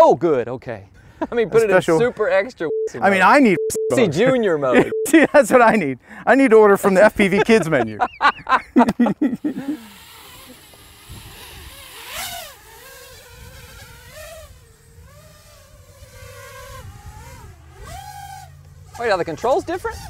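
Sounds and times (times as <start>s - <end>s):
drone motors whining: 9.8s - 19.0s.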